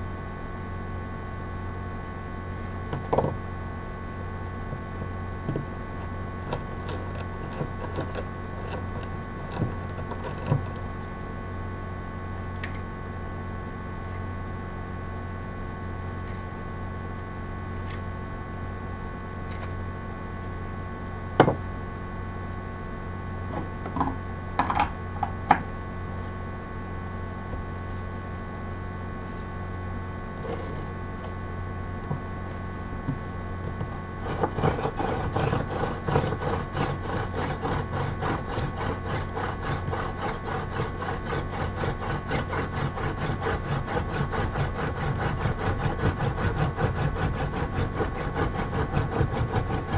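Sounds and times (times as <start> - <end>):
hand drill rubbing wood: 34.2 - 49.9.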